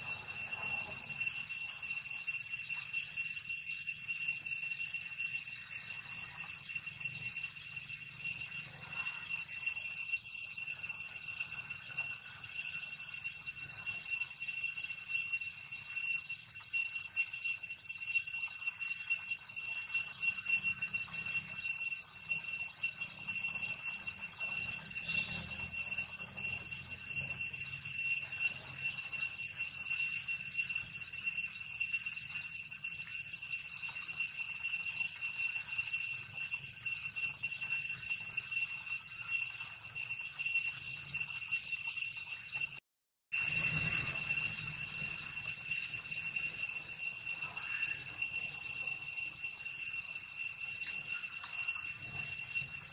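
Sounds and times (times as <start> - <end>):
insect chorus buzzing: 24.4 - 29.4, 43.4 - 48.6.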